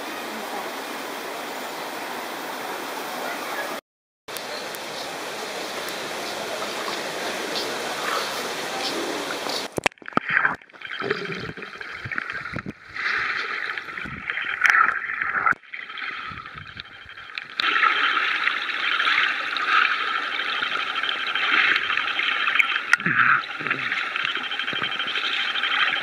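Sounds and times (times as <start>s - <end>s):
water churning at surface: 6.0s - 26.0s
muffled underwater bubbles: 6.3s - 26.0s.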